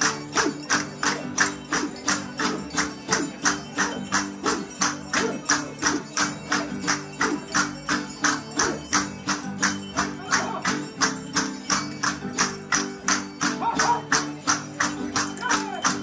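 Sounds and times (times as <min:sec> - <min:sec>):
person singing: 0:00.0 - 0:10.8.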